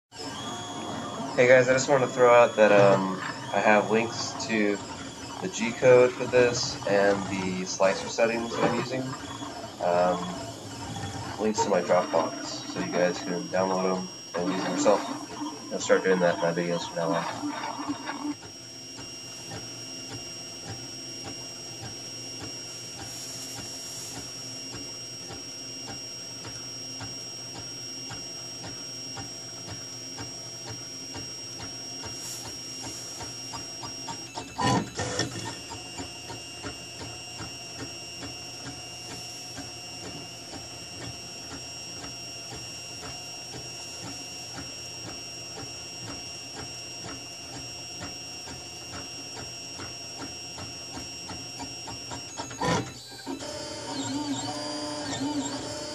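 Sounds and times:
stepper motors buzzing and ticking: 0.1 - 55.9
printer clatter: 0.2 - 17.2, 33.8 - 37.5
steady high whine: 0.2 - 25.8.

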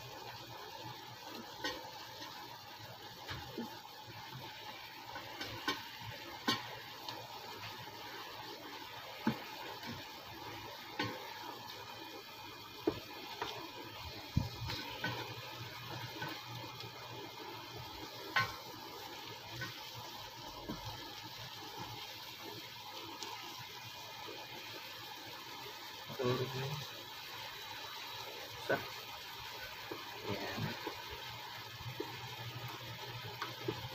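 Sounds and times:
fish sizzling in sauce: 0.0 - 33.9
utensil clicking against pan: 5.3 - 6.8, 18.3 - 18.6.

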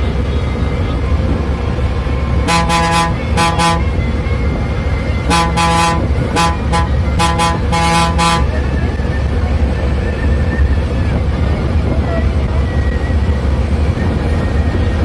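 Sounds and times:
diesel engine low rumble: 0.0 - 15.0
bus horn short toots: 2.4 - 4.0, 5.2 - 8.6.

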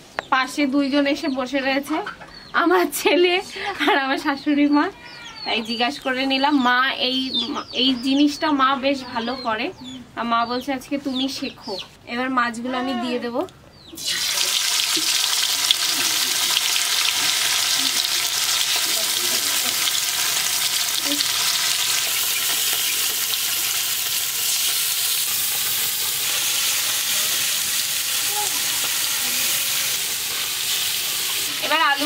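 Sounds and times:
fish sizzling in hot oil: 14.0 - 32.0.

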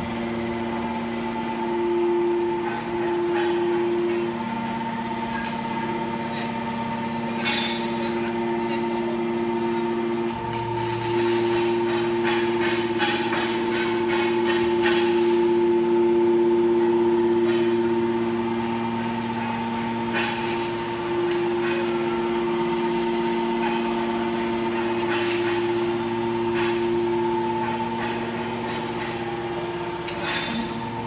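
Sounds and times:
hydraulic motor and pump hum: 0.0 - 31.0.

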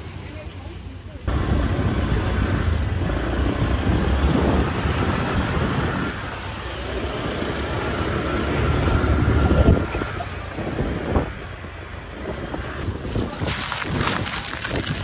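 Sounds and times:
wind buffeting microphone: 1.4 - 6.4, 8.7 - 15.0.

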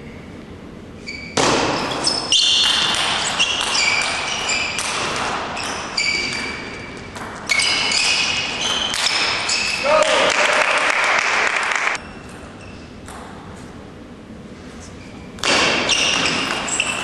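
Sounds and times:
high-pitched squeaks: 1.0 - 9.9.

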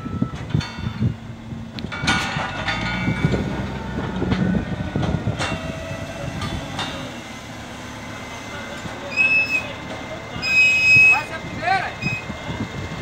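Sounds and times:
diesel engine running: 0.0 - 13.0
metal clanks and rattles: 0.4 - 7.2.

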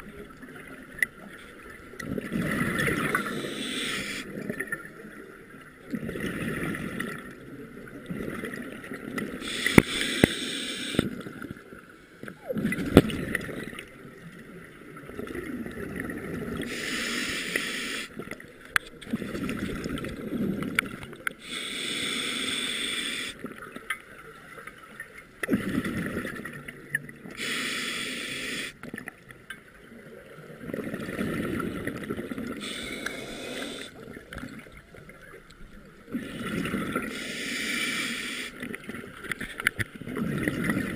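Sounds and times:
scuba diver breathing underwater: 2.9 - 4.4, 9.4 - 11.2, 16.6 - 18.2, 21.4 - 23.4, 27.4 - 28.8, 32.6 - 34.2, 36.1 - 38.7.

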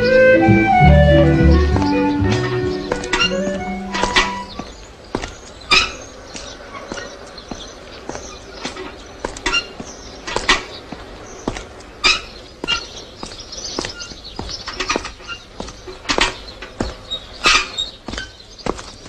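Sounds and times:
high chirping animal calls: 1.0 - 8.6.

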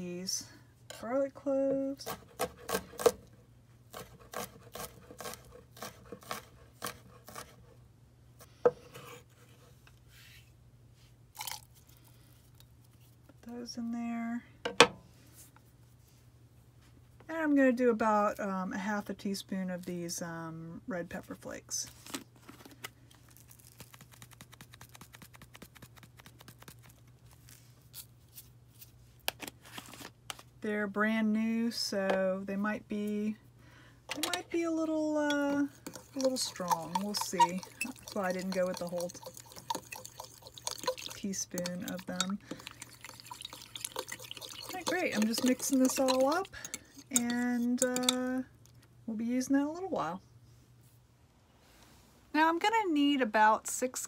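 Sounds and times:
spice jar shaken rattling: 23.5 - 27.0, 35.8 - 48.2.

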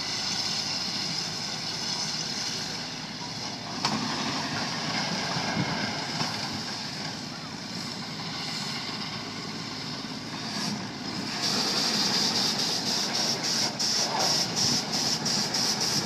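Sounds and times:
low rumble of machinery: 0.0 - 16.0
steam engine exhaust chuffing: 0.0 - 16.0.

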